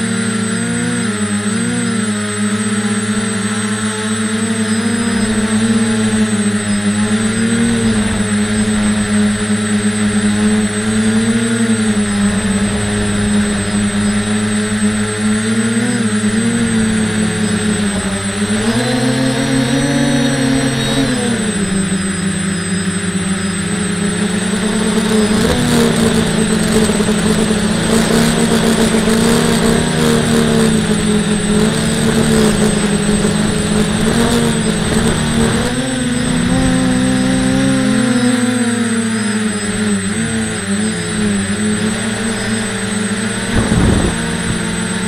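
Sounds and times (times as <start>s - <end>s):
model aircraft motor buzzing: 0.0s - 45.0s
rushing air: 43.3s - 45.0s.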